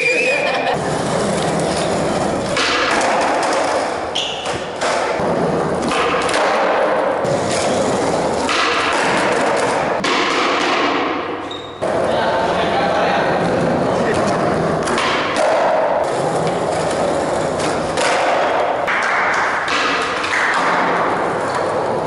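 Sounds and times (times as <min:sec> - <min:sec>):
skateboard wheels rolling on concrete: 0:00.0 - 0:22.0
skateboard popping and landing thuds: 0:08.4 - 0:11.2.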